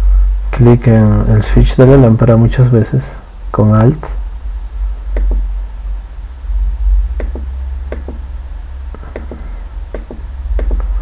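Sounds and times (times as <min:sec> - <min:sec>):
steady low hum: 0:00.0 - 0:11.0
mouse and keyboard clicks: 0:10.0 - 0:10.8.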